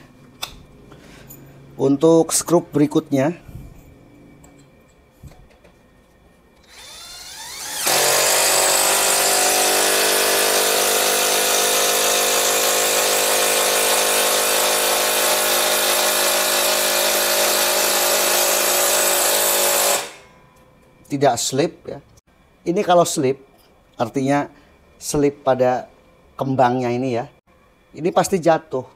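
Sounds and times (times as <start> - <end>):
impact driver motor spinning up: 6.6 - 20.2
impact driver hammering: 6.9 - 20.3.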